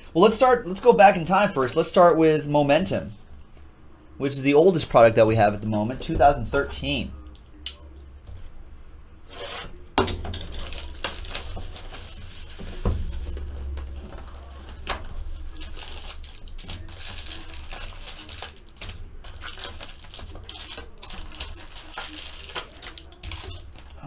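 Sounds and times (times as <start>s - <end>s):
plastic wrap tearing and crinkling: 10.3s - 24.0s.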